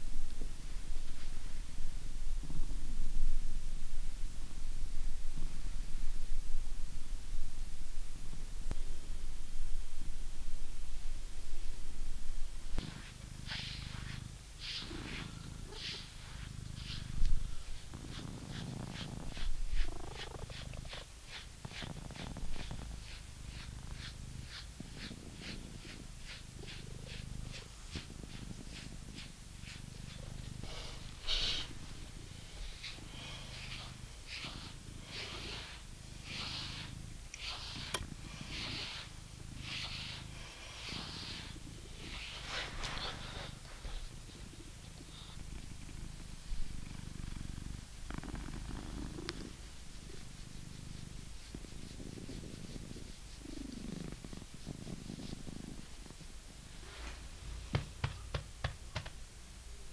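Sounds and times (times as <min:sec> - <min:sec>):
cat purring: 0:00.0 - 0:59.1
brush scratching through fur: 0:12.8 - 0:45.4, 0:48.6 - 0:56.1.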